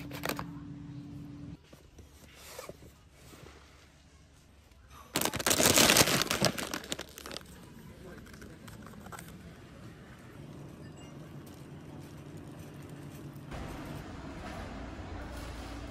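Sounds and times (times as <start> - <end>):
plastic chip bag crinkling: 5.1 - 9.4
low hum: 9.9 - 15.9.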